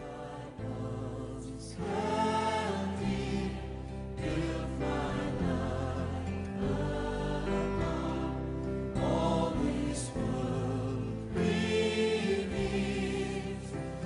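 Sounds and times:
choir singing gospel music: 0.0 - 14.0.

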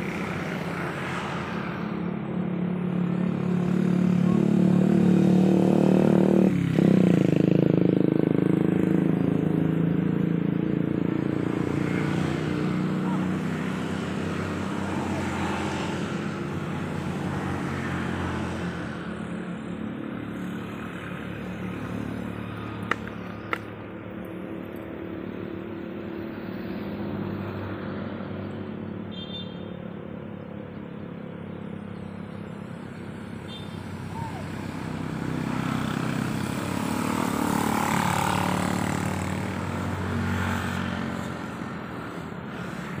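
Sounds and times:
passing vehicle engine drone: 30.1 - 43.0.

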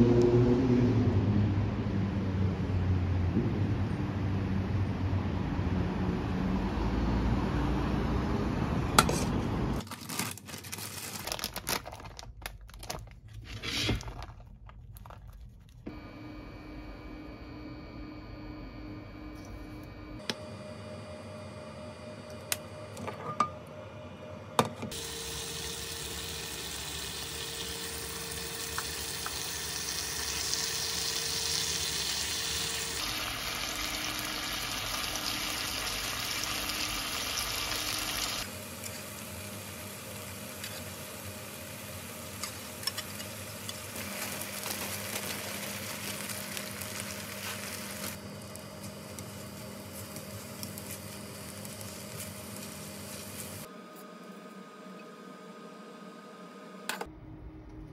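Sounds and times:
food sizzling in frying pan: 24.9 - 48.2, 49.3 - 53.7
fried rice sizzling while stirred: 25.0 - 53.7.

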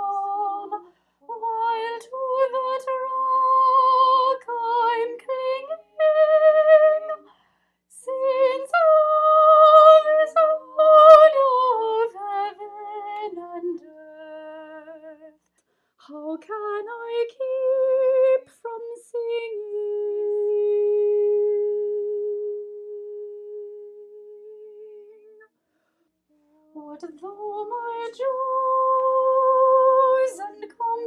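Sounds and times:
woman singing with vibrato: 0.0 - 7.3, 7.9 - 15.3, 16.0 - 25.4, 26.7 - 31.0.

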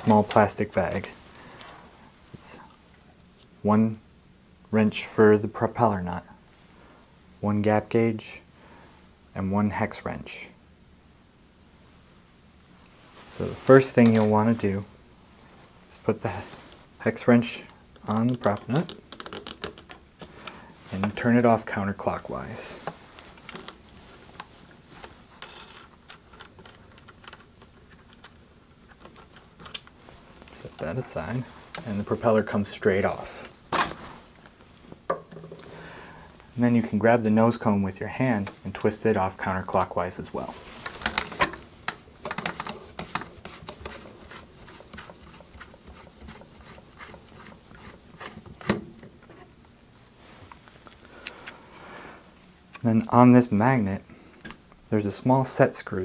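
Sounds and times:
threads scraping and clicking: 40.6 - 49.5.

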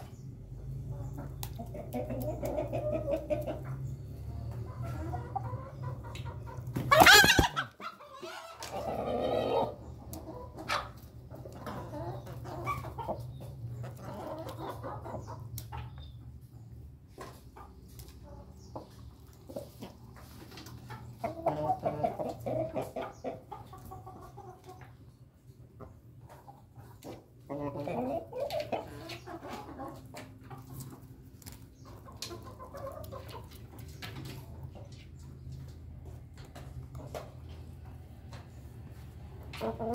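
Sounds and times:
roosters clucking and calling: 0.0 - 39.9
beaks pecking grain: 0.9 - 3.6, 27.5 - 35.7.

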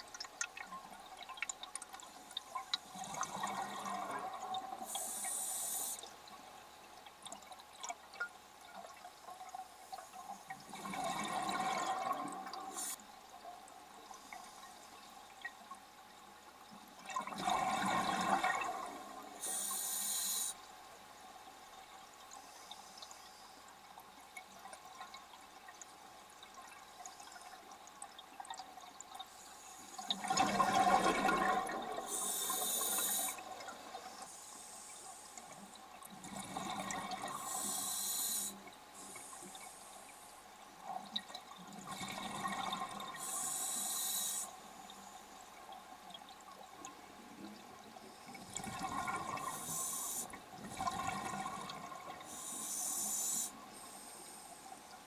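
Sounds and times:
regulator hiss: 4.8 - 6.1, 19.4 - 20.6, 32.0 - 33.4, 37.3 - 40.3, 43.2 - 44.7, 49.5 - 50.4, 52.3 - 54.7
exhaled bubbles rushing: 30.1 - 32.2, 48.4 - 49.6, 50.6 - 52.3.

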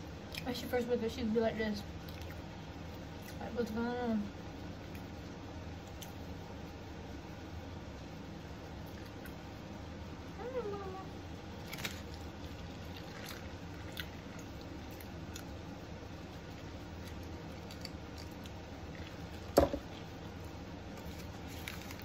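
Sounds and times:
person chewing: 11.6 - 15.6, 16.6 - 19.5.

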